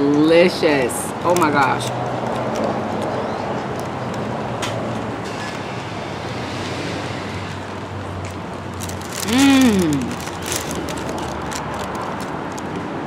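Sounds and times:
traffic: 0.0s - 13.0s.

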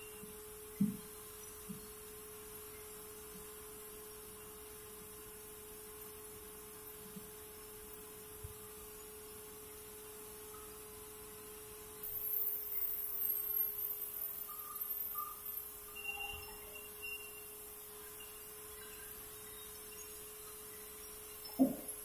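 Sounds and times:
steady single-pitched hum: 0.0s - 22.0s
high hiss: 12.0s - 22.0s.

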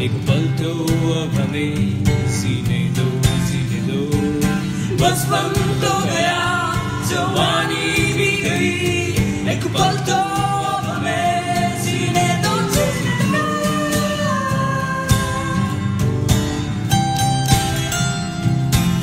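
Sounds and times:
strummed guitar: 0.0s - 19.0s
several voices singing: 2.4s - 16.0s.

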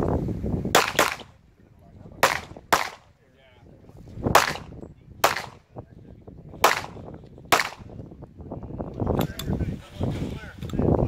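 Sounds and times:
pistol shots with echo: 0.8s - 1.4s, 2.2s - 3.1s, 4.3s - 5.6s, 6.6s - 8.0s.

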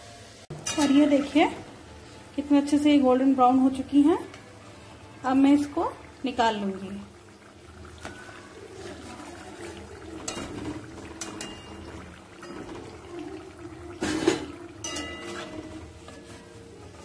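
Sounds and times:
oil bubbling and sizzling: 0.0s - 17.0s
spatula scraping and clinking pan: 0.6s - 1.4s, 10.2s - 13.0s, 13.9s - 17.0s.

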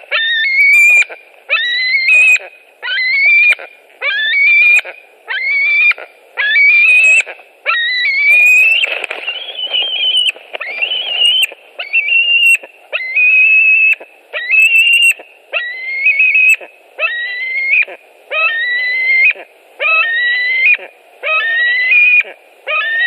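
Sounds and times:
young eagle whistling begging call: 0.1s - 23.0s.

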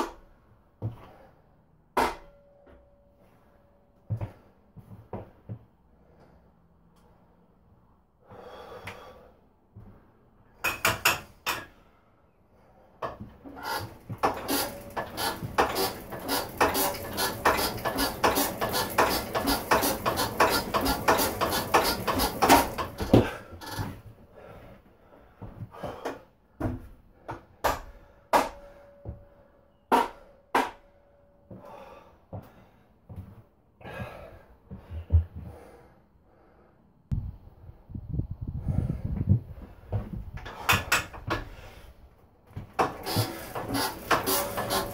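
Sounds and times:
diesel engine hand-cranked clatter: 13.0s - 24.0s, 39.9s - 41.6s, 42.6s - 44.9s.

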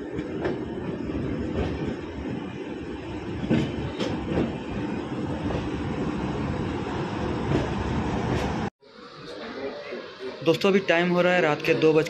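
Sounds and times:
train wheel-and-rail rumble: 0.0s - 8.7s.

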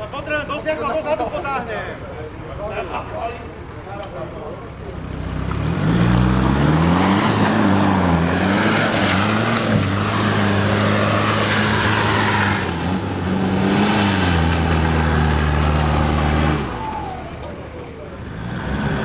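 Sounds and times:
off-road vehicle engine revving: 4.7s - 19.0s.

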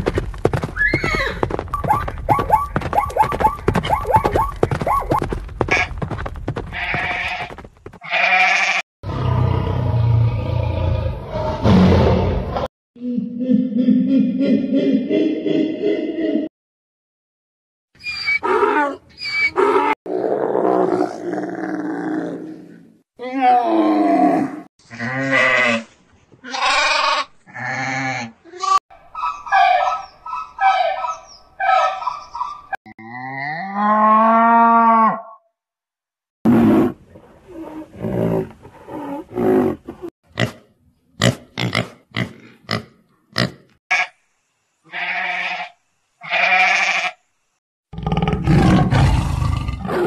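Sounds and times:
donkey braying: 0.8s - 6.0s, 27.8s - 32.8s.

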